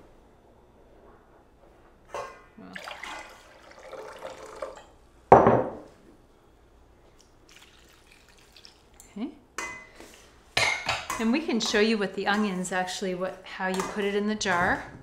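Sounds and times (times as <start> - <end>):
liquid splashing into bowl: 2.7 - 4.8, 7.2 - 9.1.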